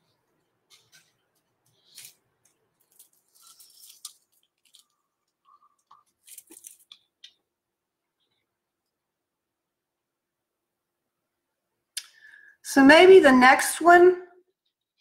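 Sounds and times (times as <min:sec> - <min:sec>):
crinkling and rustling: 0:00.0 - 0:07.5.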